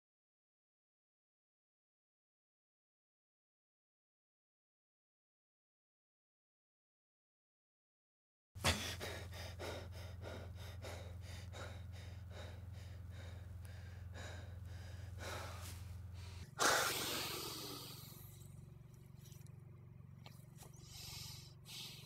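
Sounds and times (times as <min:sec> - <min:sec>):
man gasping sharply: 0:08.6 - 0:18.3
man breathing hard: 0:08.6 - 0:18.8, 0:20.6 - 0:22.0.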